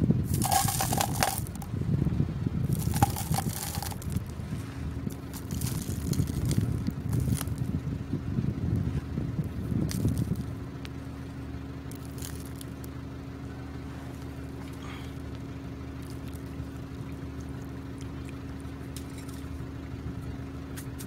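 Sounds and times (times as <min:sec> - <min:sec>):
gravel rattling: 0:00.0 - 0:13.1, 0:14.2 - 0:19.7
steady low hum: 0:00.0 - 0:20.8
tin can being handled: 0:00.3 - 0:01.7, 0:02.7 - 0:04.3, 0:05.1 - 0:07.6, 0:09.9 - 0:10.4.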